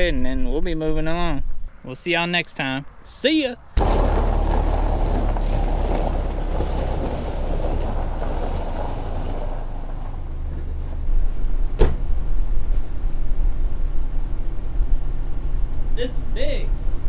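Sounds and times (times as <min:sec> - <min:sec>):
car driving on gravel: 0:03.7 - 0:13.5
wind buffeting microphone: 0:03.7 - 0:15.7
sharp knock: 0:11.8 - 0:12.1.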